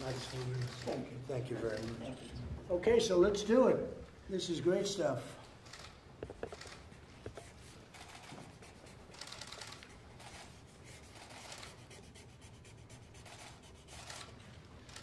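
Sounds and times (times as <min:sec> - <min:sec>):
marker pen scratching on paper: 0:06.8 - 0:14.2.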